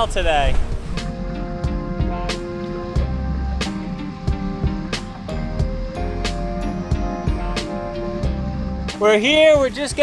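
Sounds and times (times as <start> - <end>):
sustained instrumental tones: 0.6 - 10.0
steady drum beat: 0.7 - 10.0.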